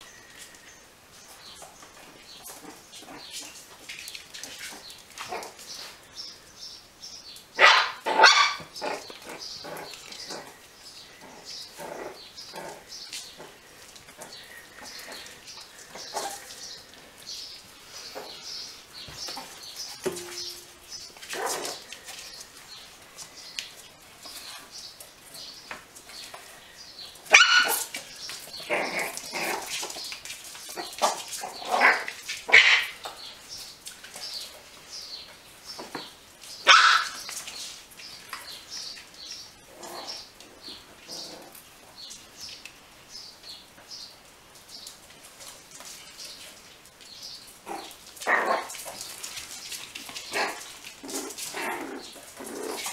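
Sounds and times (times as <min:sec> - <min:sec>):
puppies yapping and barking: 0:07.6 - 0:25.6, 0:27.1 - 0:33.0, 0:36.6 - 0:37.8, 0:47.6 - 0:52.9.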